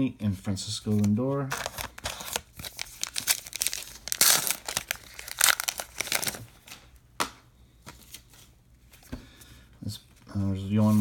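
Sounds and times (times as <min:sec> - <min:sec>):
cards being handled: 0:00.8 - 0:08.5
wrapper crinkling and tearing: 0:00.9 - 0:06.6.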